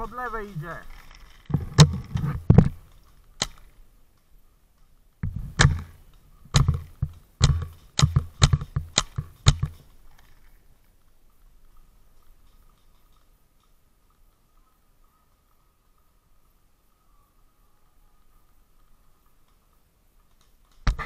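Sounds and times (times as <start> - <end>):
paintball marker shots: 5.2 - 9.9.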